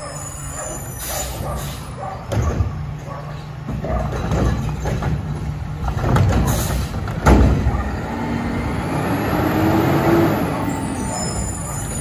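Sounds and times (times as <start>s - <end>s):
garbage truck diesel engine revving: 7.6s - 12.0s.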